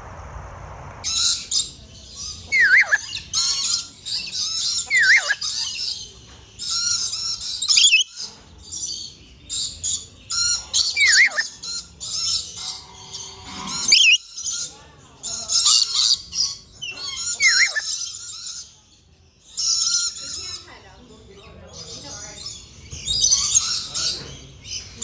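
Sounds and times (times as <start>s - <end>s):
birds chattering: 1.0s - 25.0s.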